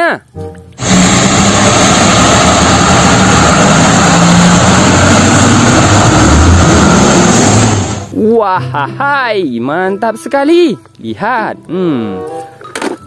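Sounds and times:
loud steady hiss: 0.8s - 8.1s
truck diesel engine running: 0.8s - 8.2s.

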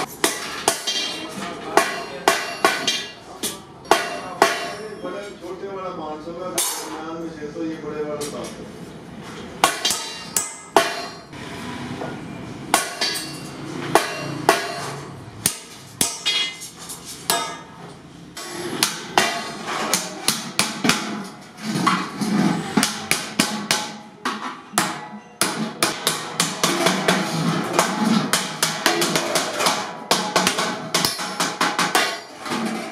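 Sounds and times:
hammer striking metal on anvil: 0.0s - 1.2s, 1.8s - 4.8s, 9.6s - 11.3s, 12.7s - 16.7s, 17.3s - 17.8s, 18.4s - 21.3s, 22.8s - 32.5s.

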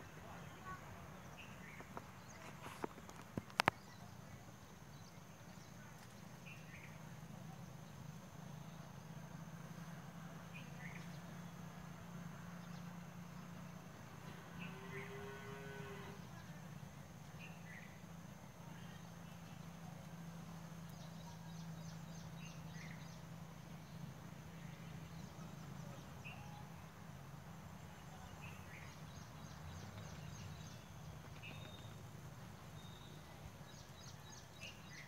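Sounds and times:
bird chirps: 28.2s - 32.1s.

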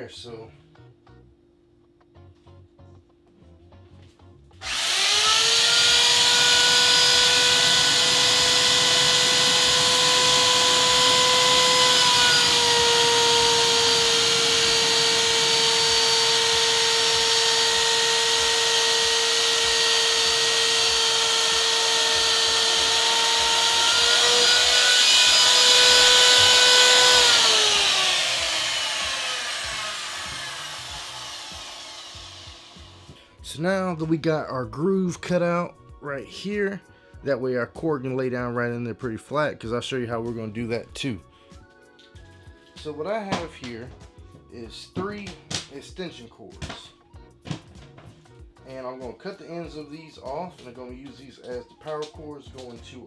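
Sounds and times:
electric router motor whining: 4.6s - 33.2s.

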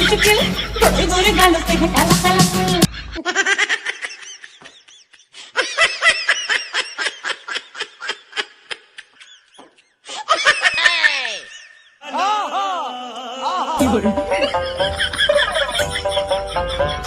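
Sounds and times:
person laughing: 0.0s - 1.1s, 2.8s - 17.0s
music: 0.0s - 2.9s, 13.8s - 17.0s.

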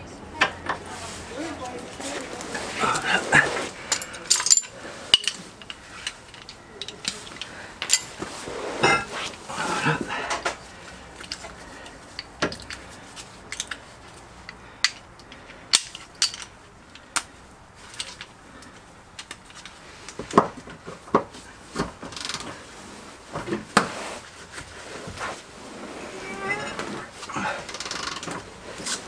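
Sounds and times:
hand tools clinking on metal: 2.6s - 19.8s.

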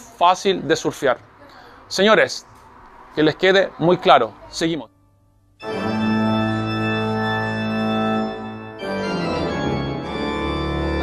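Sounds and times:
organ held chords: 4.9s - 11.0s.

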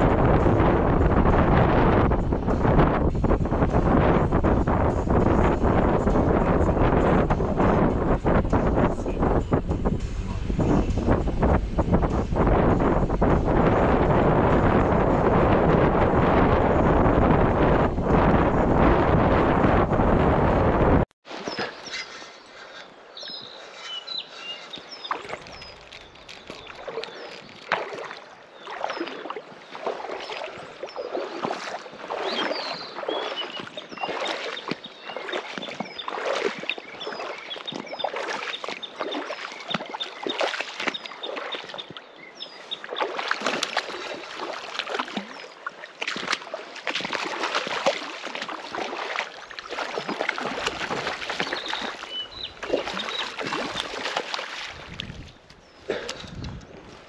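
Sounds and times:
oars splashing in water: 21.2s - 57.0s.

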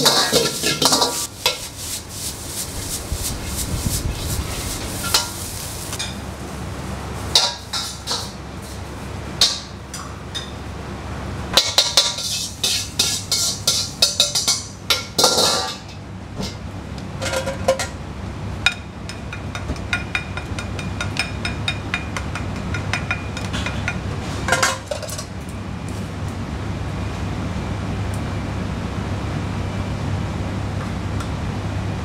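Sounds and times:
metal ladle scraping a wok: 0.0s - 6.2s, 7.3s - 8.9s, 11.6s - 15.8s
gas burner rushing: 0.0s - 10.0s.

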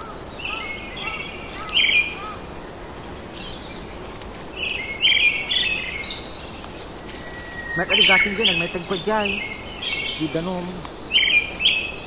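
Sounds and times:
birds chirping: 0.0s - 12.0s
steady background hiss: 0.0s - 12.0s.

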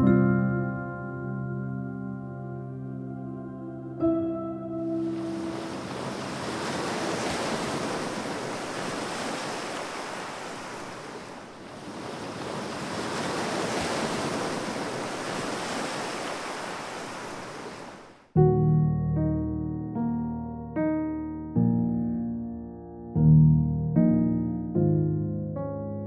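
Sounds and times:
wind: 4.8s - 18.4s
surf rushing: 5.0s - 18.2s.

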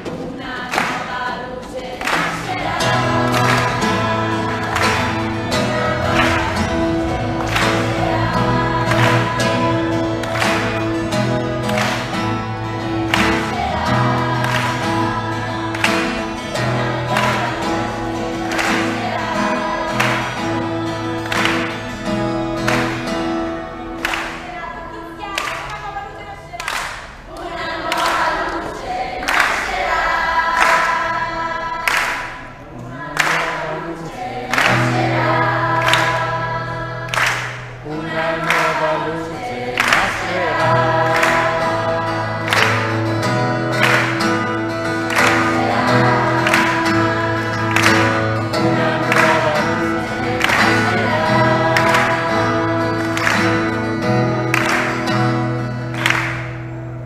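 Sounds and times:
group singing: 0.0s - 56.4s
guitar strumming: 1.6s - 26.1s, 29.6s - 57.0s
low held notes: 2.5s - 25.1s.

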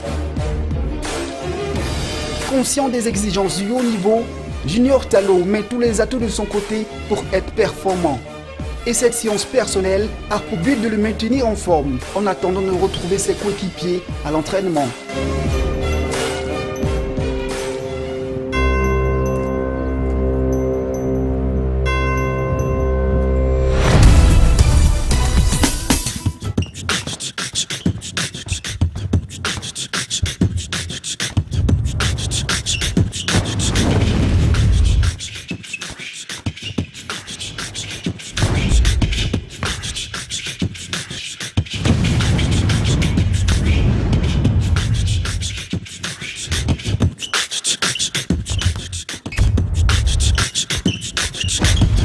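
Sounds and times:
percussive background music: 0.0s - 21.9s, 22.7s - 52.0s
beatbox deep bass: 26.4s - 52.0s
beatbox clicks and snaps: 35.2s - 42.7s, 44.8s - 51.8s.

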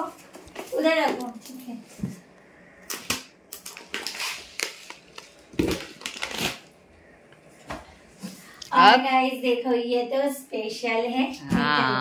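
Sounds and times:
plastic packaging crinkling: 2.9s - 6.9s.

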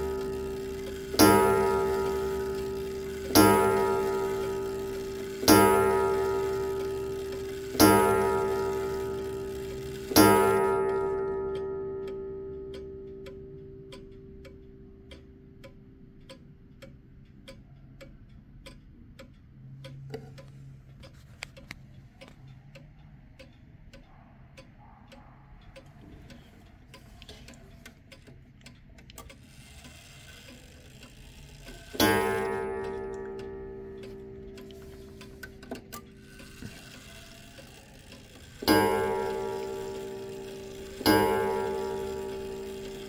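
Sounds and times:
clock gong ringing: 0.0s - 14.3s, 30.6s - 43.0s
clock ticking: 0.0s - 43.0s.

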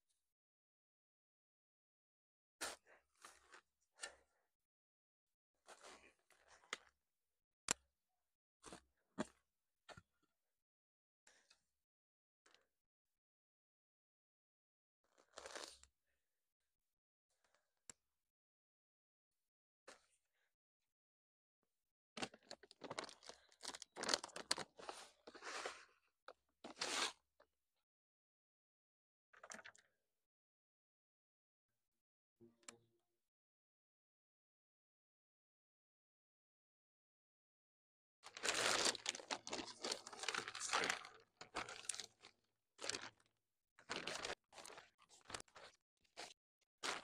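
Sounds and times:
plastic packet crinkling: 22.2s - 24.8s, 38.3s - 43.2s, 43.9s - 45.7s.

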